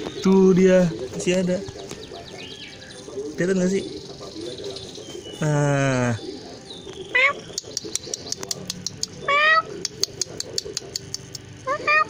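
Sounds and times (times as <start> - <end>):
cat meowing: 7.2 - 7.4, 9.3 - 9.7, 11.7 - 12.0
quick high-pitched ticks: 7.5 - 9.2, 9.8 - 11.6.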